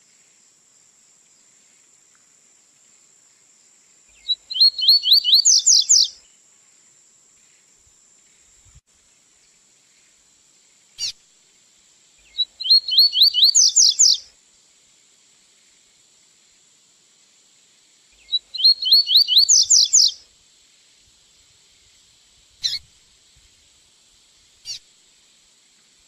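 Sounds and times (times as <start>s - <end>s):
bird singing: 4.1s - 6.2s, 12.2s - 14.2s, 18.2s - 20.2s, 22.6s - 22.8s.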